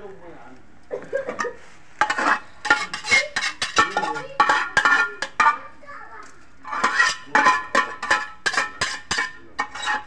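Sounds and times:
metal spoon clinking on pots: 1.3 - 5.8, 6.6 - 10.0.

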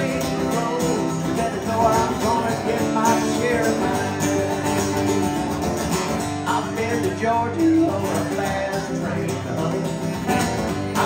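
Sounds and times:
acoustic guitar strumming: 0.0 - 11.0
guitar melody line: 0.0 - 11.0.

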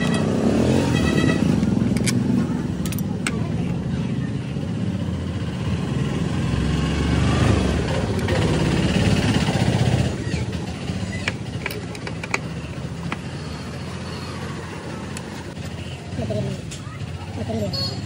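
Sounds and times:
vehicle engine running: 0.0 - 18.0
spanner clicking on bolts: 2.8 - 3.4, 11.1 - 13.3.

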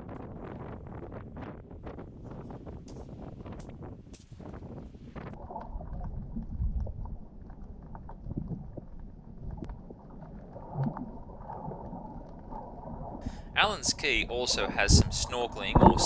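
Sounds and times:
underwater rumble of moving water: 0.0 - 4.0, 5.2 - 16.0
faint underwater clicks and pops: 5.2 - 13.3, 14.9 - 16.0.

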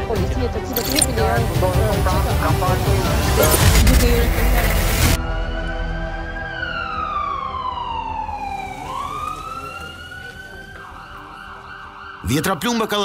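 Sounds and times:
ambulance siren wailing: 6.5 - 12.9.

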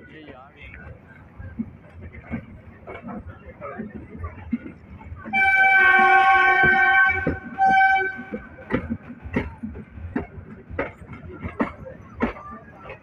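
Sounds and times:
wheels clicking over rail joints: 0.2 - 13.0
locomotive horn blasts: 5.3 - 8.6.

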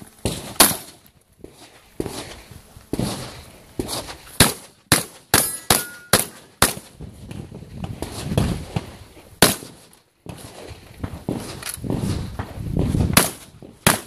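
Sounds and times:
shotgun shots: 0.2 - 1.0, 4.4 - 7.0, 9.4 - 10.5, 13.1 - 14.0
steel targets ringing: 5.3 - 6.6.

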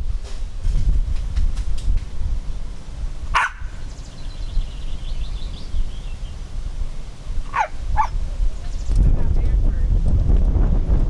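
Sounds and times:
wind on microphone: 0.0 - 11.0
dog bark: 3.4 - 3.7, 7.5 - 8.2.

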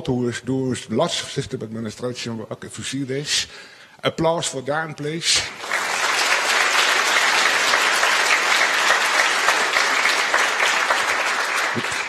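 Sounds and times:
large audience applauding: 5.4 - 12.0.

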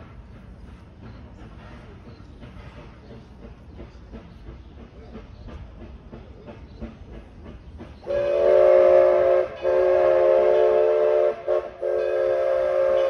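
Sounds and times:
steam locomotive chuffing: 0.0 - 13.0
steam whistle blasts: 8.1 - 13.0.

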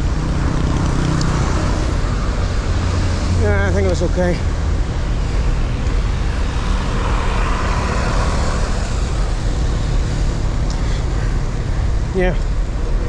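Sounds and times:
road traffic noise: 0.0 - 13.0.

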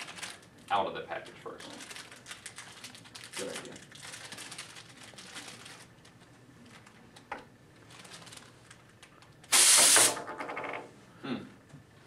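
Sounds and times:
compressed air blast: 9.5 - 10.2.

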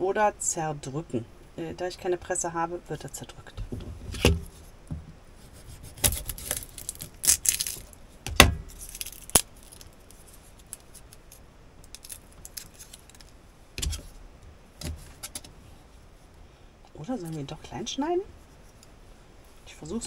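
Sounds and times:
garlic skin rustling: 5.4 - 14.2.

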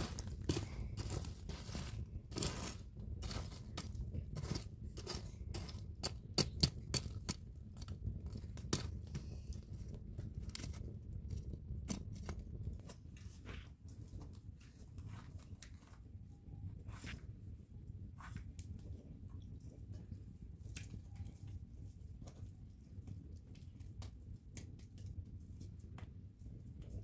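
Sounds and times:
coals clinking: 0.0 - 13.3
metal tool raking charcoal embers: 0.0 - 15.8.

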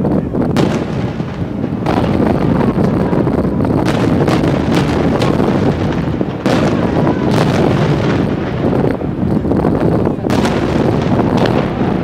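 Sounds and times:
firework shells booming: 0.0 - 12.0
sharp firework bangs: 0.0 - 12.0.

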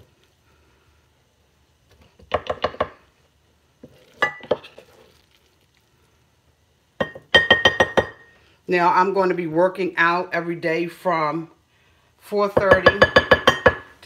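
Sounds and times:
spatula knocking glass bowl: 7.0 - 8.2, 12.6 - 13.9.

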